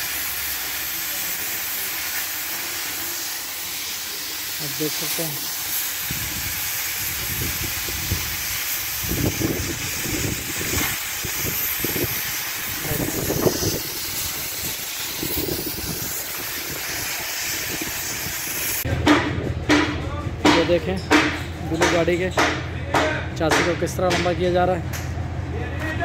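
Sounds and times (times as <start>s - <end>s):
cutting torch hissing: 0.0s - 18.9s.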